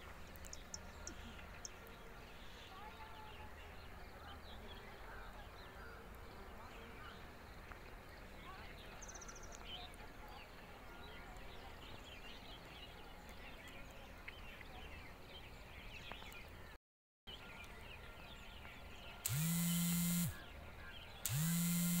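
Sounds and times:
bird chirps: 0.1 - 16.6
buzzing tone sweeping up in pitch: 19.3 - 20.4, 21.3 - 22.0.

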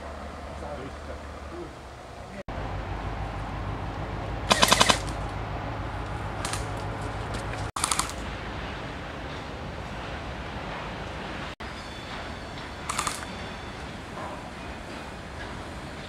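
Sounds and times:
airsoft gun bursts: 4.5 - 5.2.

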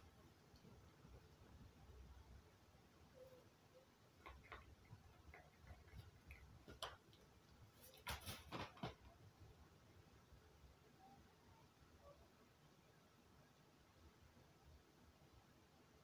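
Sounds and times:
crow clicks and taps: 4.2 - 7.3.

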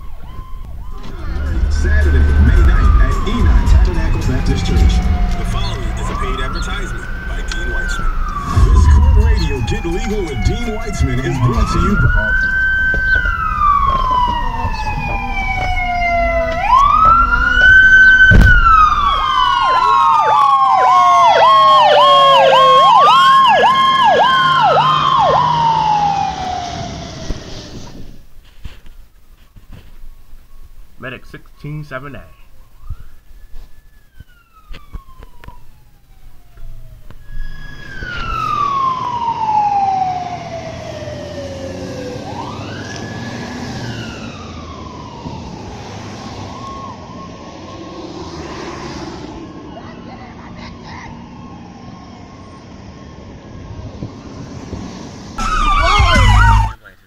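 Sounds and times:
fast pulsing siren tone: 0.0 - 27.5, 31.6 - 48.3, 55.4 - 56.8
siren wailing: 0.0 - 28.0, 31.4 - 54.6, 55.4 - 56.8
low traffic noise: 0.0 - 57.0.

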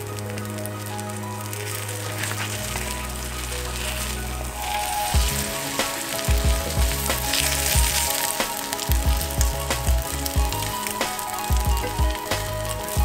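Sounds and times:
omelette sizzling in a skillet: 0.0 - 11.7
background music with held chords: 0.0 - 13.0
drum beat: 5.2 - 13.0.

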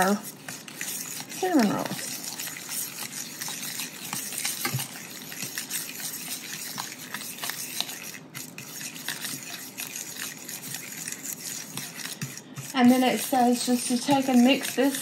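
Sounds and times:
utensil clicking and scraping bowl: 0.0 - 15.0
utensil stirring thick mixture: 0.0 - 15.0.

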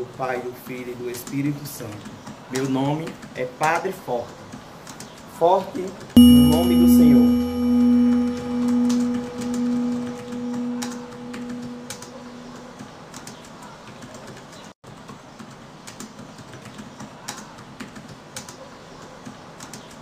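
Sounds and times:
held ringing tone: 6.2 - 12.6.

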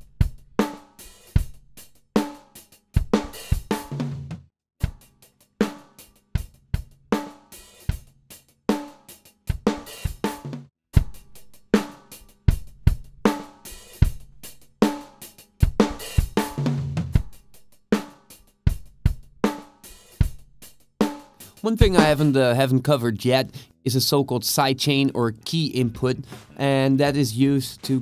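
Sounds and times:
drum kit loop: 3.0 - 4.3, 9.5 - 28.0.

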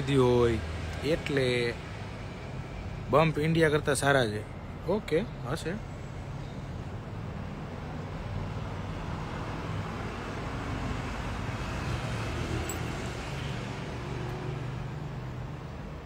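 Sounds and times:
car passing: 7.4 - 16.0.

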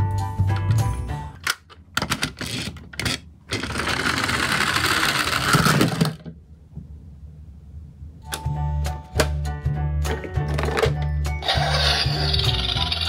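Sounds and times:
plastic toy clicks and clatters: 1.4 - 6.2
toy wheels rattling on wood: 2.4 - 6.2, 11.4 - 13.0.

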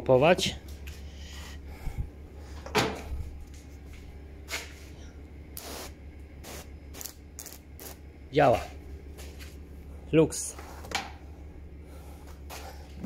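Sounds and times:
sprayer spraying water bursts: 5.6 - 8.0.

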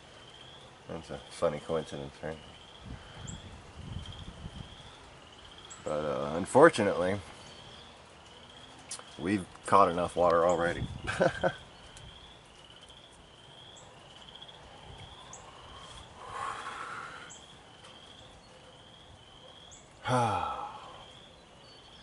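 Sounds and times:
man sighing: 20.0 - 21.1.

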